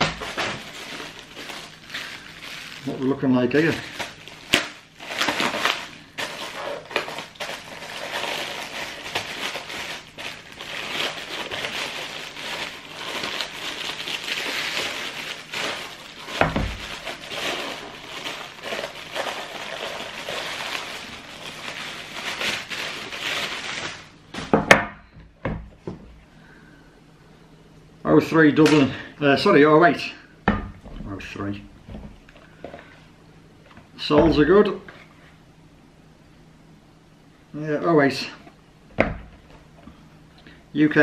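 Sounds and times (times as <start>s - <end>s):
plastic packaging crinkling: 0.0s - 24.6s.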